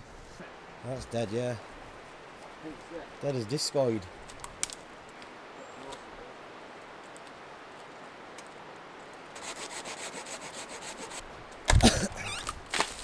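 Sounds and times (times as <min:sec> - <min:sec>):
branch cracking and thumping: 0:04.2 - 0:05.3, 0:11.6 - 0:13.0
hand saw rasping through wood: 0:09.4 - 0:11.2.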